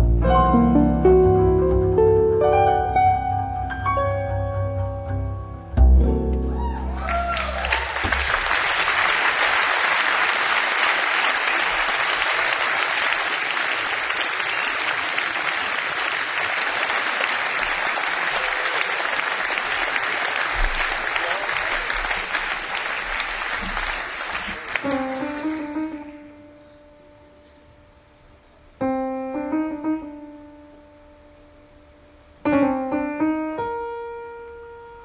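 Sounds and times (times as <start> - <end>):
piano and bass chord: 0.0 - 8.2, 24.7 - 35.0
audience applauding: 6.7 - 26.2.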